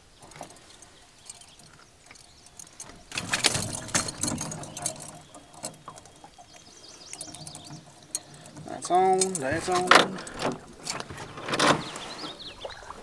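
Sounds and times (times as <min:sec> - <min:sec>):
fishing tackle clicks and rattles: 0:00.2 - 0:12.0
scraping and rustling: 0:07.2 - 0:12.6.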